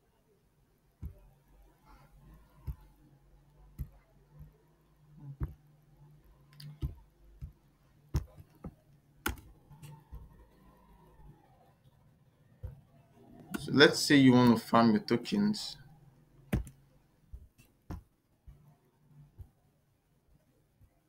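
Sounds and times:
faint low hum: 0.0 - 21.0
computer mouse clicking: 6.4 - 11.6.

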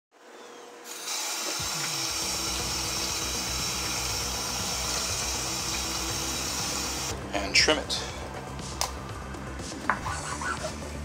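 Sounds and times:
faucet water running in sink: 0.9 - 7.1
low background music: 0.9 - 11.0.

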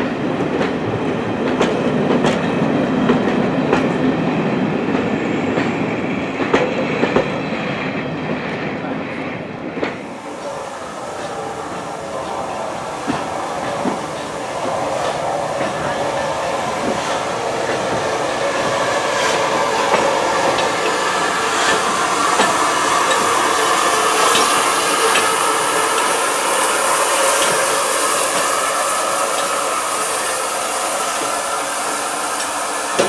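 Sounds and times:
train wheels rumbling on rails: 0.0 - 33.0
steam hissing: 10.0 - 33.0.

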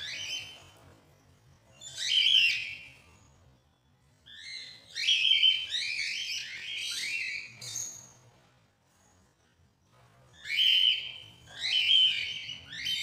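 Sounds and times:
cockatiel nestlings begging calls: 10.4 - 13.0.

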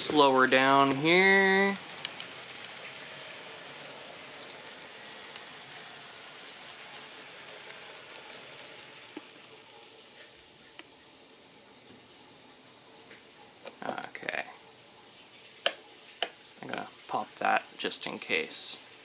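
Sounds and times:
model train motor hiss: 0.0 - 14.5.

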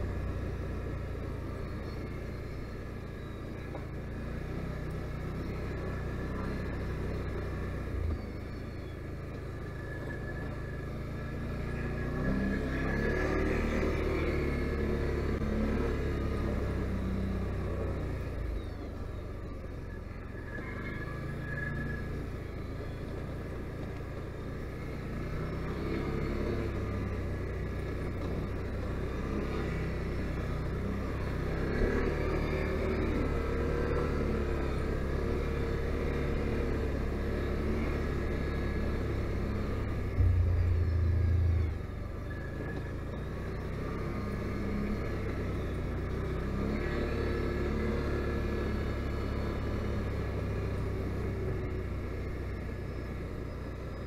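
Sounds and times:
atv engine revving: 9.6 - 18.3, 20.4 - 54.0
loud low rumble: 39.7 - 44.0.

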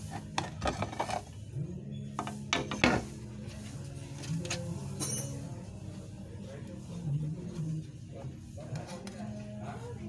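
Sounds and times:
metallic clink: 4.6 - 6.0.

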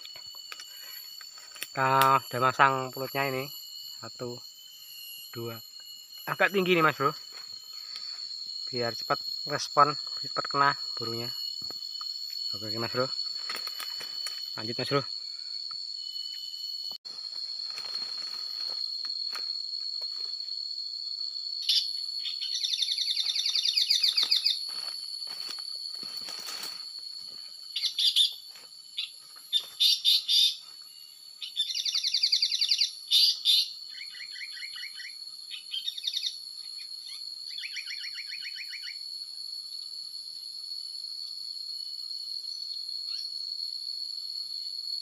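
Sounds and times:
insects droning: 0.0 - 45.0
harsh rasping bird calls: 29.0 - 30.6.

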